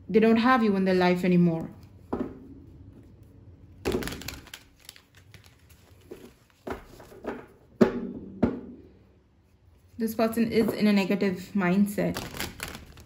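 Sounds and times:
cards clicking while shuffled: 3.9 - 7.1.

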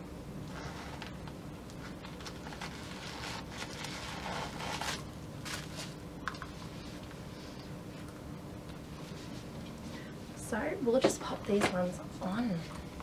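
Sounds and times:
packaging paper rustling: 0.6 - 6.0.

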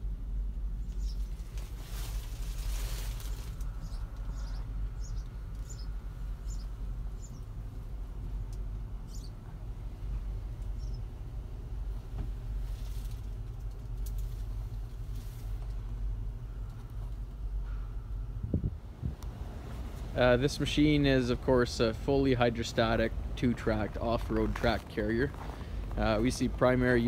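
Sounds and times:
diesel engine idling: 0.0 - 27.0
small bird chirping: 0.8 - 1.5, 3.7 - 7.5, 9.0 - 9.4, 10.7 - 11.1.

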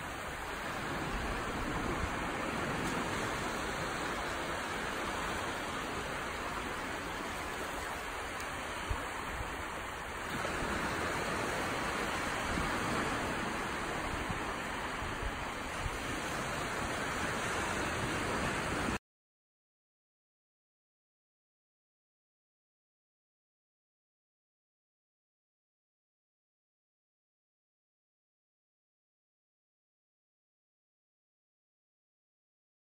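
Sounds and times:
small waves washing on beach: 0.0 - 19.0.

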